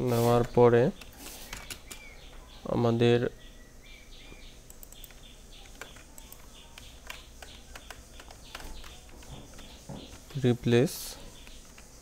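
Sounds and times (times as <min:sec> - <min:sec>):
keyboard keys clicking: 0:04.6 - 0:10.5, 0:11.3 - 0:12.0.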